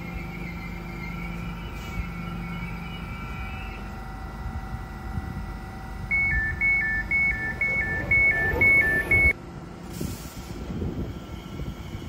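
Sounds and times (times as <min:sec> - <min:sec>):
low hum of standing train: 0:00.0 - 0:12.0
two-tone electronic door beep: 0:06.1 - 0:09.4.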